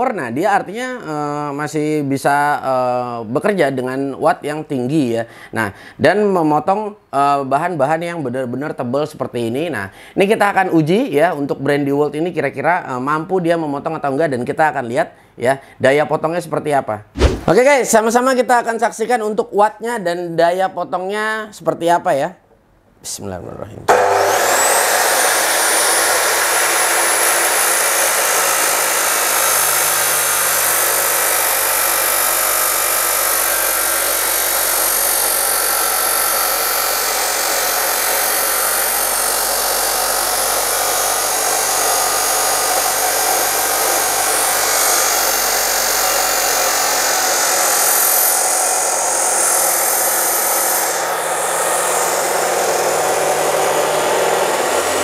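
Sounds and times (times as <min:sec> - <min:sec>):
chop saw grinding through steel: 0:23.9 - 0:55.0.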